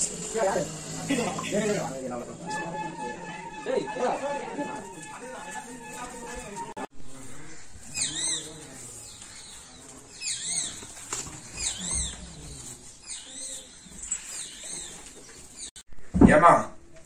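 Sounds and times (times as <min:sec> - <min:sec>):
high bird chirps: 0:07.8 - 0:12.3.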